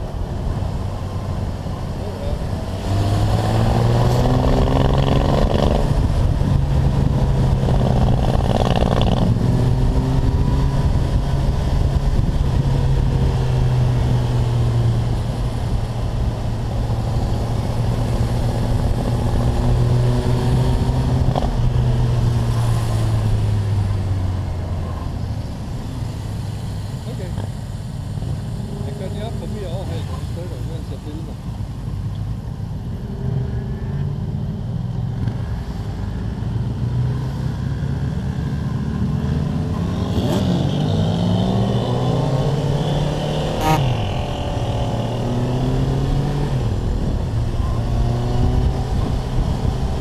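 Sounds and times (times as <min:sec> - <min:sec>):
road and wind noise: 0:00.0 - 0:50.0
motorcycle engine revving: 0:02.0 - 0:25.1, 0:37.0 - 0:50.0.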